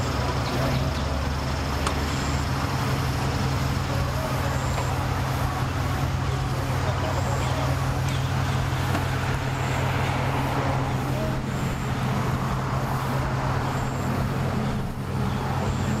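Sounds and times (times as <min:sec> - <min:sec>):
engine idling: 0:00.0 - 0:16.0
outdoor noise: 0:00.0 - 0:16.0.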